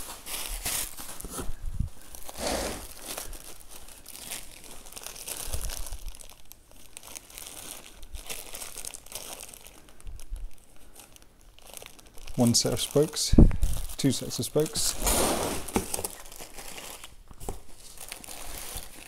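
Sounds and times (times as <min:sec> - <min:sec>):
plastic packaging rustling: 0:00.0 - 0:19.0.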